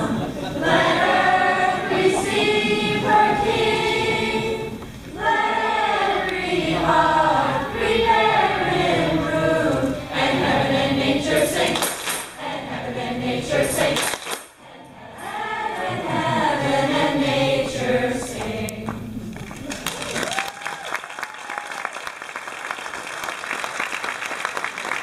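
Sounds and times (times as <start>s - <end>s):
choir singing: 0.0s - 19.1s.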